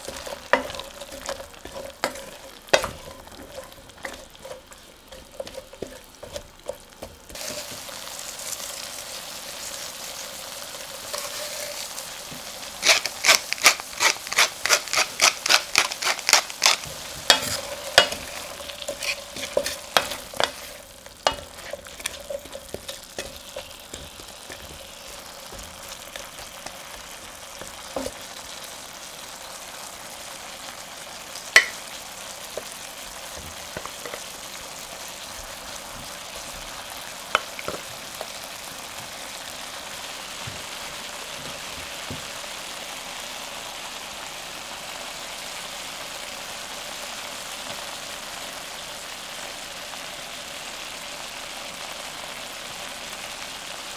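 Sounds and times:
spatula knocking and scraping pan: 0.0s - 8.0s, 10.9s - 28.5s, 31.6s - 31.9s, 32.5s - 34.3s, 37.3s - 38.2s
vegetables sizzling in a pan: 0.0s - 53.9s.

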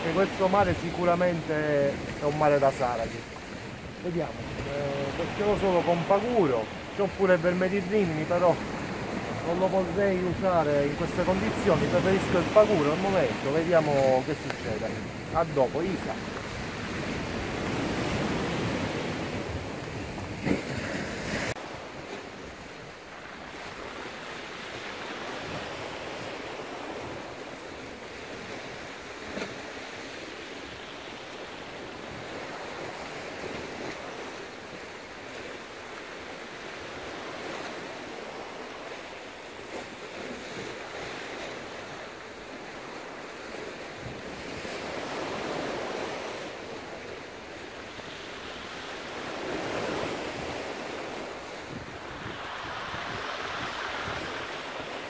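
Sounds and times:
waves surging against rocks: 0.0s - 55.0s
wind on microphone: 49.2s - 55.0s.

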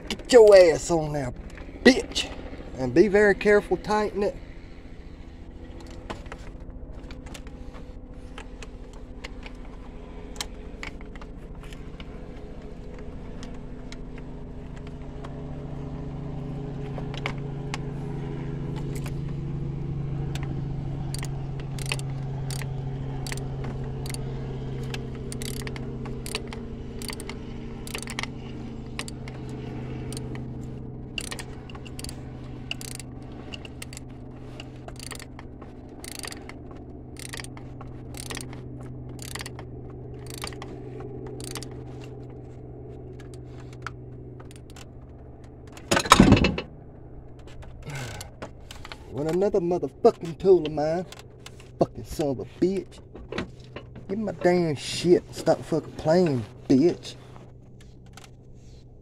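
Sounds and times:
steady low hum: 0.0s - 59.0s
hand ratchet clicking: 21.1s - 24.3s, 24.9s - 28.3s, 28.9s - 29.4s, 30.0s - 30.4s, 31.1s - 35.4s, 36.0s - 36.6s, 37.2s - 39.6s, 40.2s - 40.7s, 41.3s - 41.9s, 44.4s - 44.9s.

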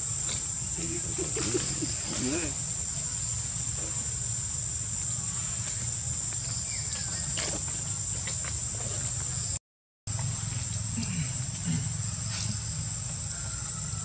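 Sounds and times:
high-pitched insect drone: 0.0s - 14.0s
faint chirps: 10.2s - 14.0s.

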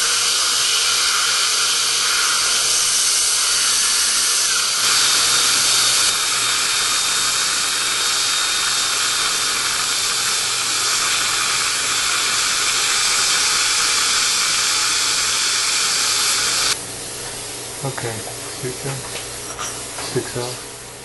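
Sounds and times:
dental drill hissing and whining: 0.0s - 16.8s.

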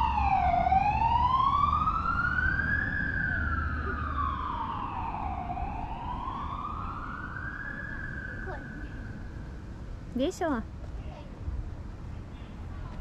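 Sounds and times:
emergency siren wailing: 0.0s - 9.7s.

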